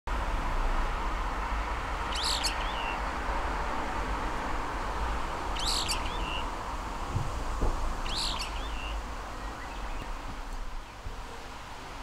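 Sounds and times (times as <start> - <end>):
bird giving harsh calls: 2.1 - 3.0, 5.6 - 6.5, 8.1 - 9.0.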